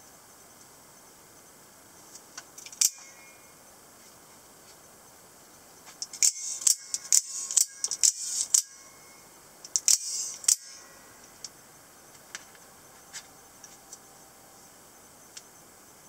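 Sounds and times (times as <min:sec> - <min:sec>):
knife blade metallic clicks: 0:02.6 - 0:03.2.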